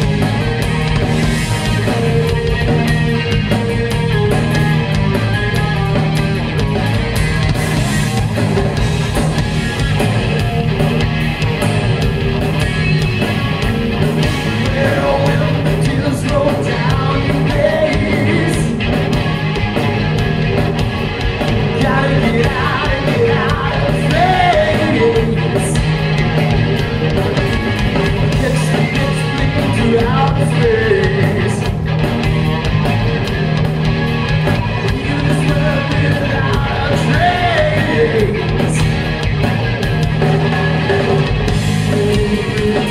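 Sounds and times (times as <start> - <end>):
drum kit: 0.0 - 42.9
electric bass: 0.0 - 42.9
electric guitar: 0.0 - 42.9
man singing: 14.5 - 18.8, 21.7 - 25.8, 28.3 - 31.7, 34.8 - 38.9, 41.8 - 42.9.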